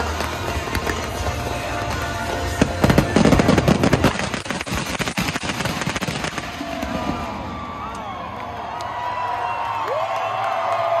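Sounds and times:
music: 0.0 - 6.1
fireworks bangs and crackles: 0.0 - 8.3.

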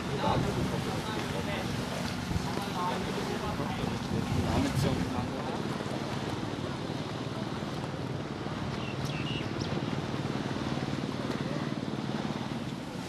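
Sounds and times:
motorboat engine running: 0.0 - 13.0.

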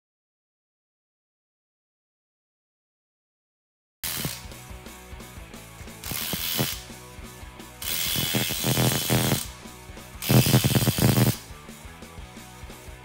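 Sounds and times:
impact wrench hammering: 6.0 - 6.8, 7.8 - 9.5, 10.2 - 11.4.

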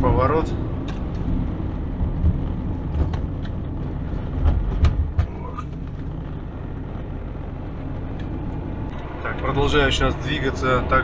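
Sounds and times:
car driving low rumble: 0.0 - 11.0
knocks and rattles: 2.1 - 6.4.

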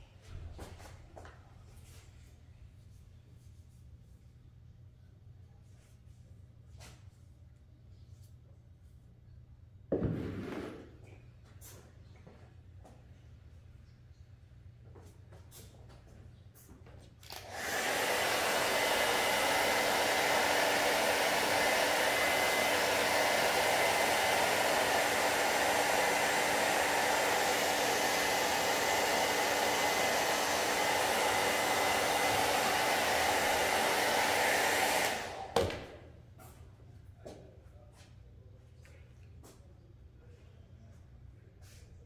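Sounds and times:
hair dryer set down knock: 9.9 - 11.0, 34.4 - 36.0
hair dryer blowing: 17.2 - 36.1.

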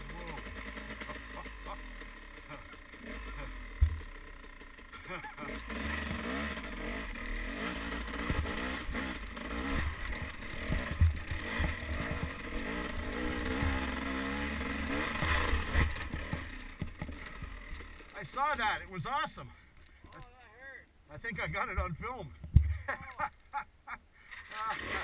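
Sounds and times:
dirt bike engine revving: 0.0 - 19.1, 24.3 - 25.0
bike knocking on rocks: 3.8 - 4.2, 9.7 - 12.5, 13.1 - 14.2, 15.0 - 18.2, 21.2 - 23.2.

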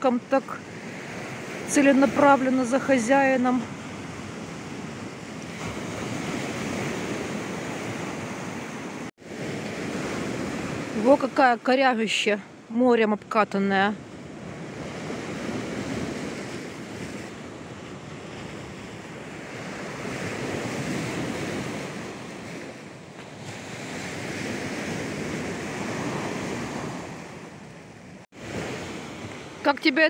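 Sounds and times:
surf washing onto beach: 14.2 - 30.0.

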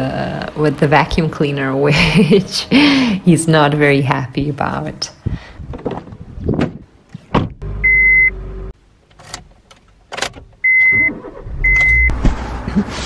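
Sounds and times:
car warning chime beeps: 7.8 - 8.4, 10.6 - 12.2.

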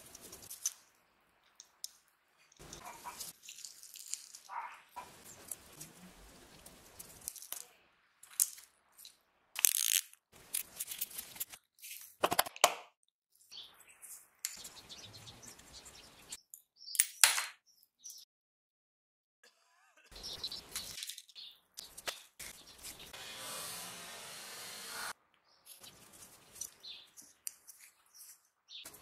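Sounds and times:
metal parts and tools clinking: 9.6 - 11.5.

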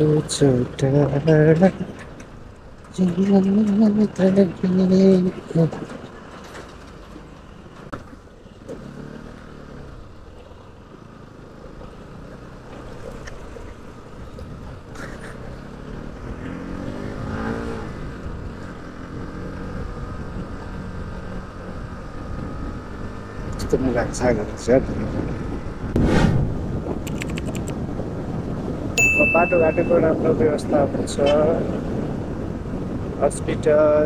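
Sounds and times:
motorcycle engine accelerating: 8.6 - 29.8.

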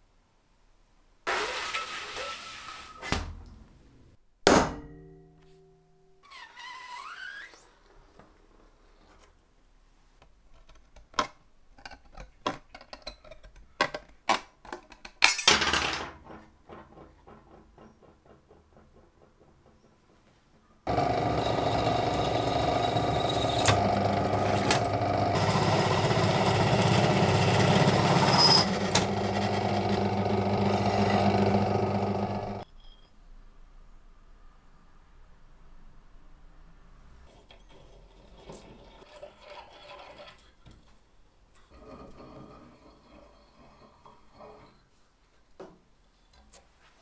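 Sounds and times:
drill press drilling sheet metal: 20.9 - 32.6.

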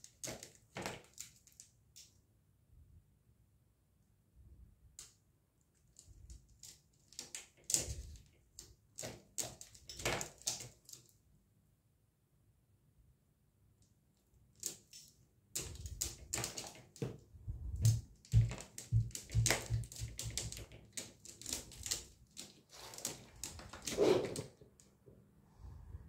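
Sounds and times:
cat claws scratching mesh screen: 17.8 - 24.6.

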